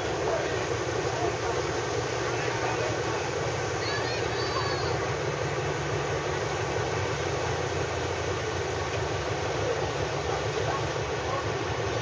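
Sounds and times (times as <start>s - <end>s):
motorboat engine rumble: 0.0s - 12.0s
wind: 0.0s - 12.0s.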